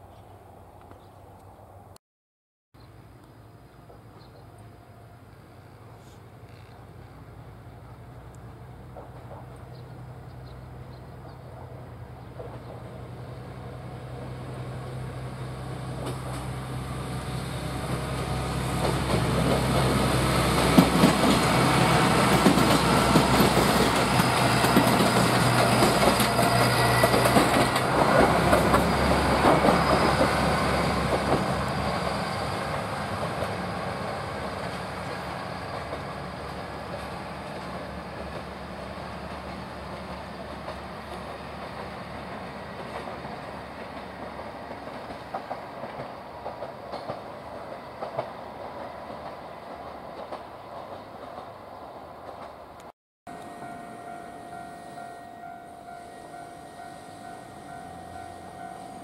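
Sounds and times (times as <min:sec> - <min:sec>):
wheels clacking over rail joints: 0:11.2 - 0:13.0, 0:18.0 - 0:52.9.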